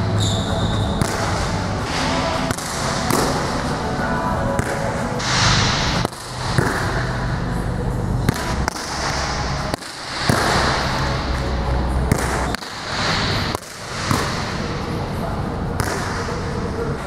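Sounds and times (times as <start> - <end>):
gym room noise: 0.0 - 17.0
low hum: 0.0 - 17.0
hands slapping volleyball: 1.0 - 3.5, 4.6 - 7.0, 8.2 - 11.5, 12.1 - 12.8, 13.5 - 14.6, 15.8 - 16.4.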